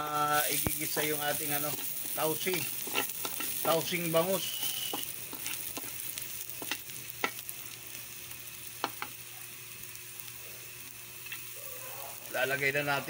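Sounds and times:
garlic sizzling in oil: 0.0s - 13.0s
spatula scraping a wok: 0.4s - 7.4s.

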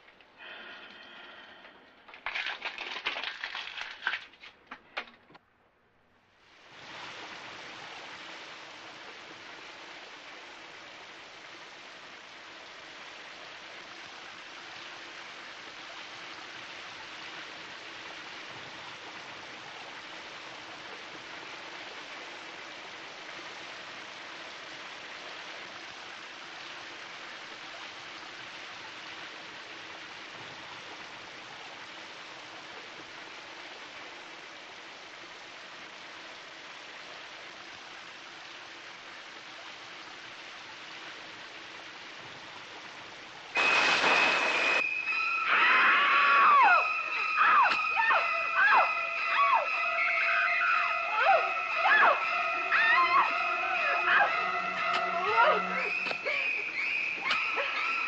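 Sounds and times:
shower spray hissing on tiles: 43.6s - 45.4s.

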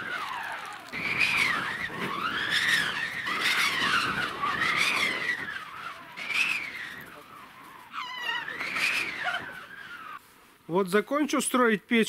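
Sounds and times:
child squealing: 2.4s - 10.2s.

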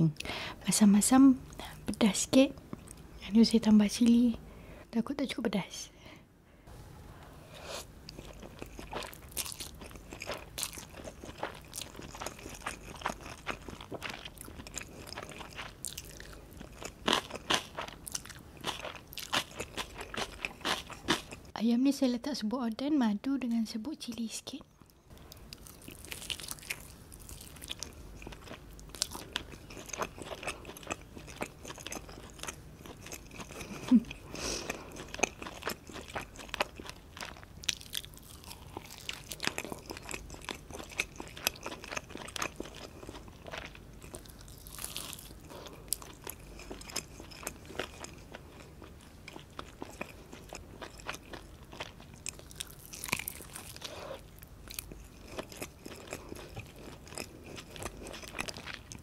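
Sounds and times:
chewing chicken with sticky clicks: 34.9s - 59.0s.

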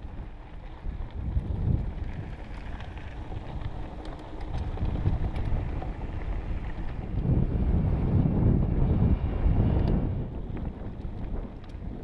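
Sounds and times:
bike ticks and rattles: 0.0s - 12.0s
wind buffeting microphone: 0.0s - 12.0s.

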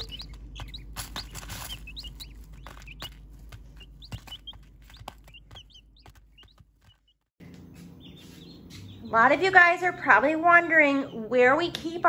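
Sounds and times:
ducklings pecking taps: 0.0s - 9.6s
ducklings peeping: 0.0s - 12.0s.

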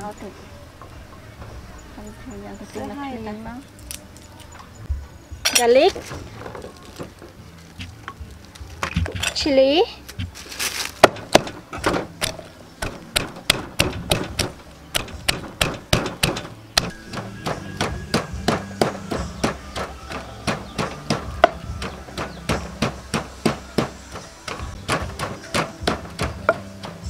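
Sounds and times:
wooden pestle pounding in mortar: 11.0s - 27.0s.

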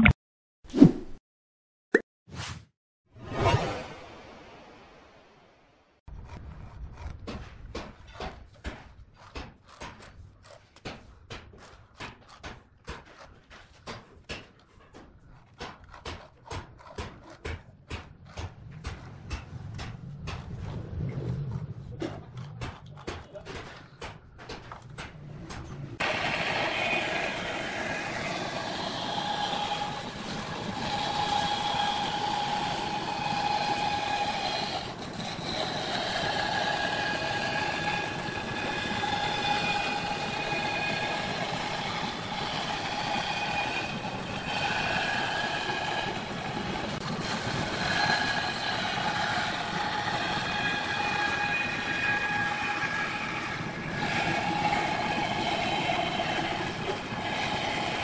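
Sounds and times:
bandsaw cutting wood: 15.4s - 19.9s, 26.0s - 58.0s.

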